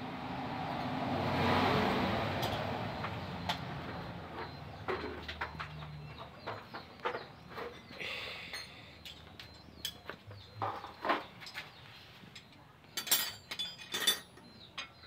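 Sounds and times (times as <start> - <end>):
vehicle passing by: 0.0 - 7.7.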